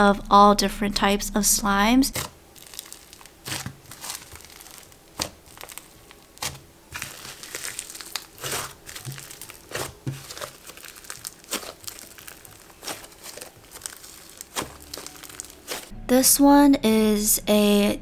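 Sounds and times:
slime crackling and crunching: 0:02.1 - 0:15.9.

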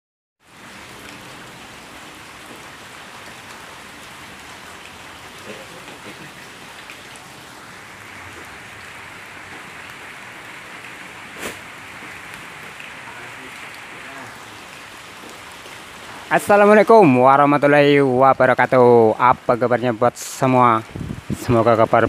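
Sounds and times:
steady rain falling: 0:00.4 - 0:22.0.

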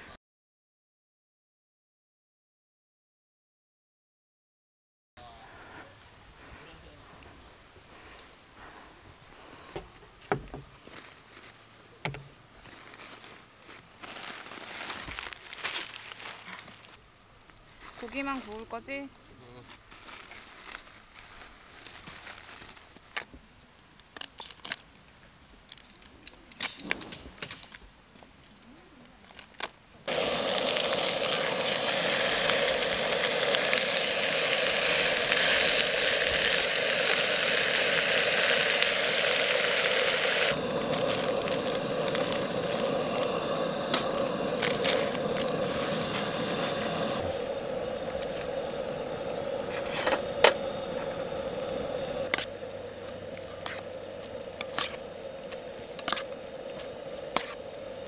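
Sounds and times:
plastic bags rustling: 0:12.6 - 0:17.0, 0:19.6 - 0:23.2
meat sizzling in a pan: 0:30.1 - 0:58.0.

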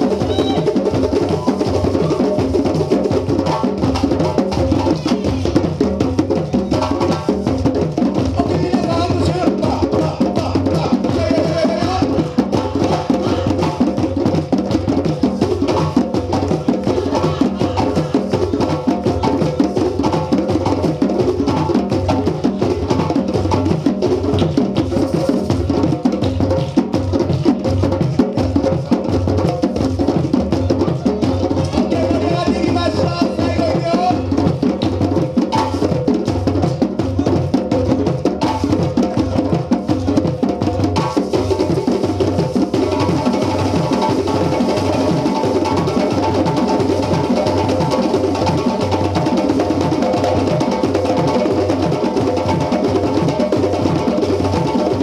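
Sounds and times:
djembe drum ensemble: 0:00.0 - 0:55.0.

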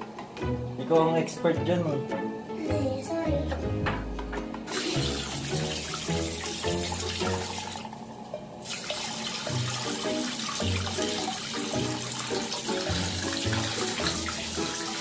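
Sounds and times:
background music with plucked notes: 0:00.0 - 0:15.0
water splashing in toilet bowl: 0:04.7 - 0:08.0, 0:08.6 - 0:15.0.

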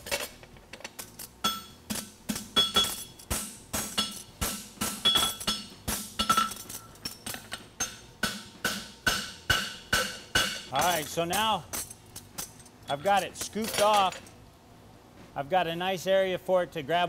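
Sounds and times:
hammer striking on anvil: 0:01.4 - 0:06.6, 0:07.8 - 0:11.6.

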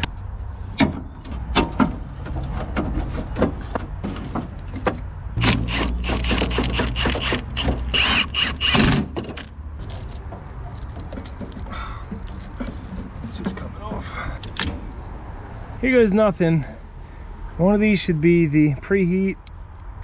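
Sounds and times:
metal clicks and knocks: 0:00.8 - 0:07.9.

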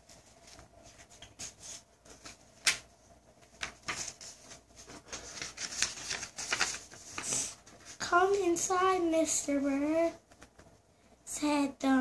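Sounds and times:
book pages rustling: 0:00.0 - 0:08.6.

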